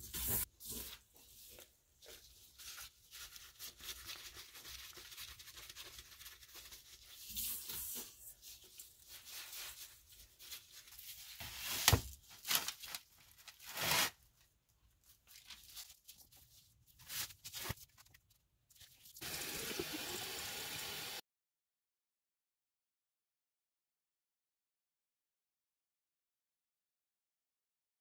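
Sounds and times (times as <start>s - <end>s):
bath bomb fizzing in water: 19.2s - 21.2s.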